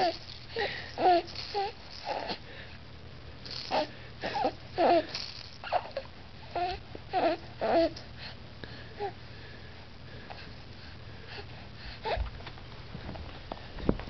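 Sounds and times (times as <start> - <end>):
baby cooing and grunting: 0.0 - 2.4, 3.5 - 8.0.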